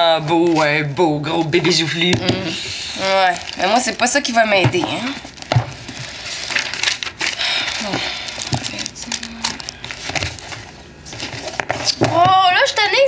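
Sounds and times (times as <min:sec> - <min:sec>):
book pages flipping: 0:03.0 - 0:12.4.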